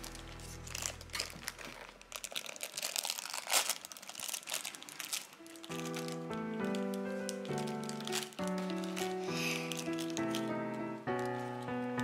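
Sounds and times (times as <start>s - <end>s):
music: 0.0s - 2.4s, 5.0s - 12.0s
plastic wrapper crinkling and tearing: 0.0s - 12.0s.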